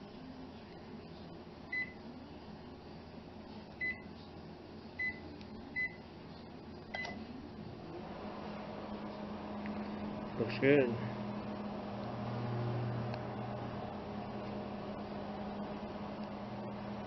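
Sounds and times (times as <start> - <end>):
microwave oven humming: 0.0 - 17.0
microwave keypad beeping: 3.8 - 4.0, 5.0 - 5.2, 5.8 - 6.0, 6.9 - 7.2.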